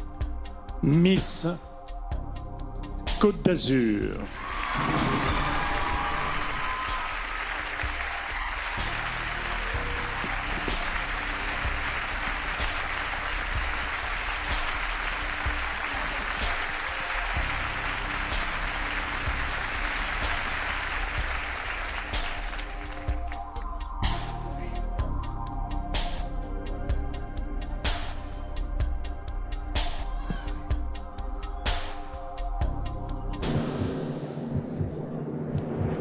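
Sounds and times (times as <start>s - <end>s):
music playing: 0.0s - 36.0s
crowd applauding: 4.2s - 23.5s.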